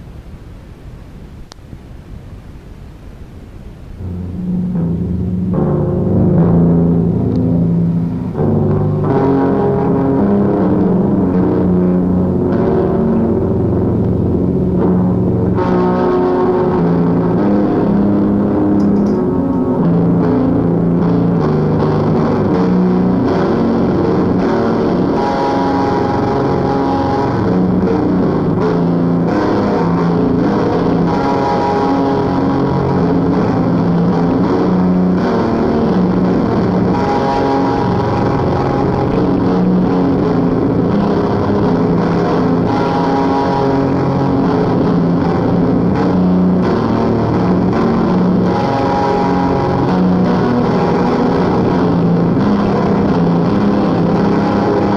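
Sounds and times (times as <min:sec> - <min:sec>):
droning distorted guitar music: 0:03.8 - 0:54.9.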